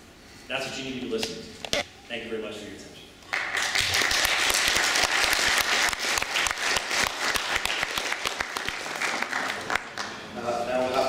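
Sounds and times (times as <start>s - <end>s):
audience applauding: 3.3s - 10.2s.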